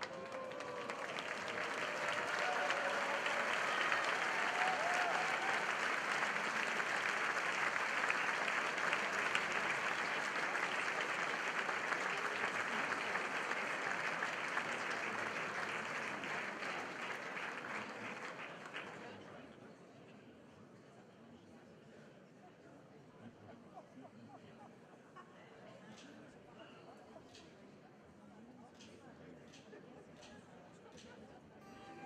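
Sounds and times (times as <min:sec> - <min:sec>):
audience applauding: 0:00.0 - 0:19.2, 0:31.6 - 0:32.0.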